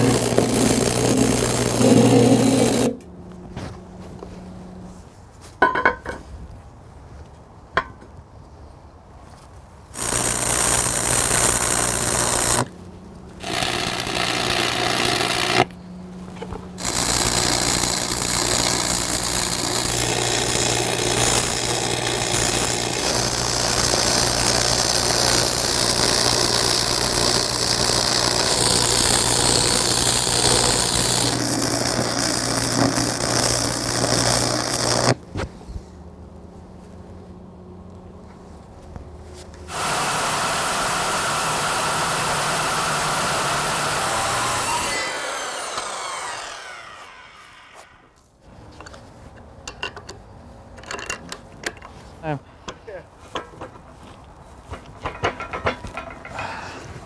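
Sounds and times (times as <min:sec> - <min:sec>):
welding arc hissing: 0:00.0 - 0:03.0, 0:10.0 - 0:12.7, 0:13.4 - 0:15.7, 0:16.8 - 0:35.2
welder low hum: 0:00.0 - 0:03.1, 0:09.9 - 0:35.2, 0:39.7 - 0:48.2.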